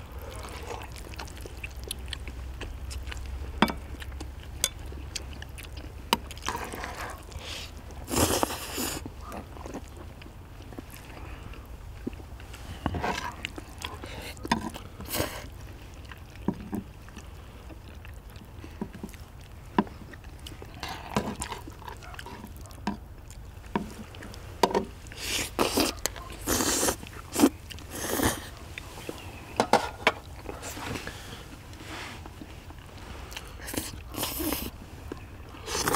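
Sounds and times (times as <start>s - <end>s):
people chewing and slurping: 0.0s - 35.9s
chopsticks clicking on plates: 3.6s - 4.8s.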